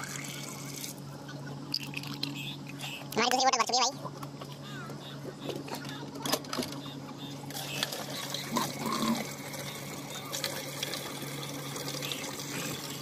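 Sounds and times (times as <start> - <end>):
steady low hum: 0.0 - 13.0
water pouring into plastic bottle: 7.9 - 13.0.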